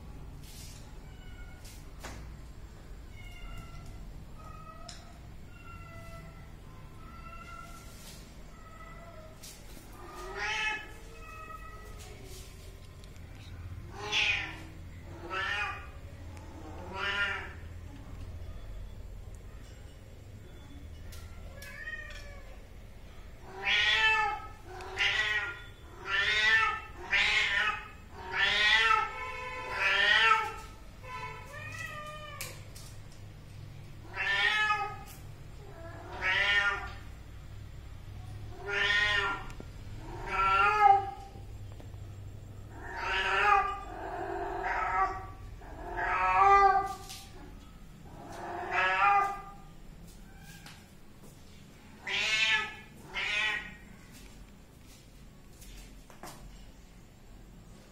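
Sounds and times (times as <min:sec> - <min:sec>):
cat meowing: 0:34.0 - 0:35.1, 0:35.7 - 0:37.1, 0:38.5 - 0:41.4, 0:42.7 - 0:47.5, 0:48.1 - 0:49.7, 0:52.0 - 0:53.8.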